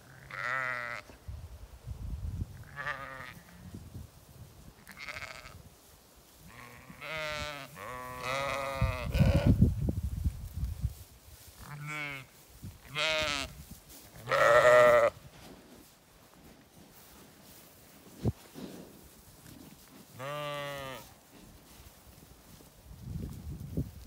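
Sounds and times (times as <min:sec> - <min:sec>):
sheep bleating: 0:00.1 - 0:01.1, 0:02.6 - 0:03.6, 0:04.8 - 0:05.6, 0:06.5 - 0:09.6, 0:11.7 - 0:12.3, 0:12.9 - 0:13.5, 0:14.2 - 0:15.2, 0:20.2 - 0:21.1.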